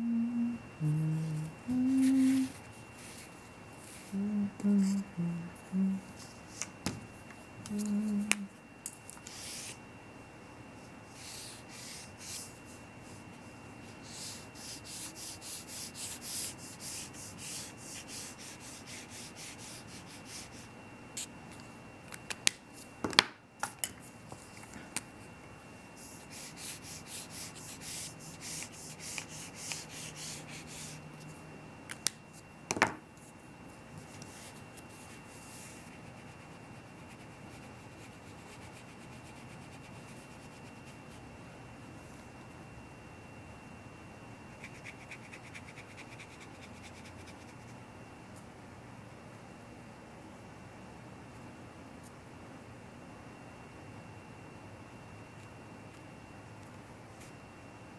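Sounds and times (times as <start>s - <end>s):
paintbrush scratching on paper: 14.0s - 20.7s, 26.0s - 31.0s, 34.2s - 41.0s.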